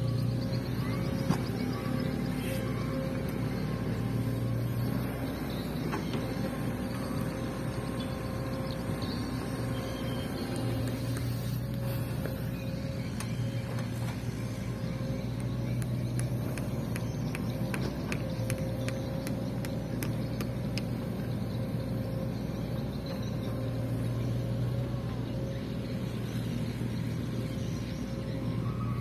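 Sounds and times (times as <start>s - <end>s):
excavator diesel engine droning: 0.0s - 29.0s
sharp clicks and knocks: 15.3s - 21.0s.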